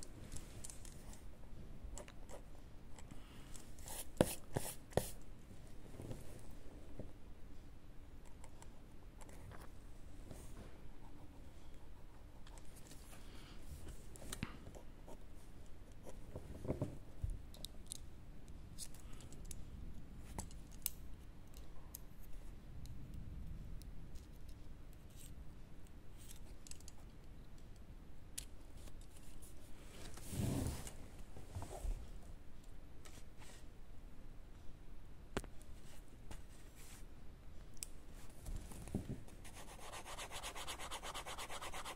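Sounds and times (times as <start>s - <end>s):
pencil scratching on paper: 39.4s - 41.9s.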